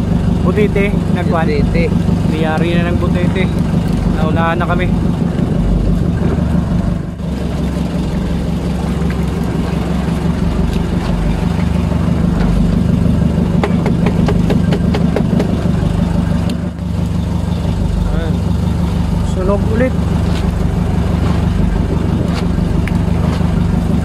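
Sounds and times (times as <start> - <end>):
boat engine idling: 0.0 - 24.0
sharp clicks and knocks: 13.5 - 15.8.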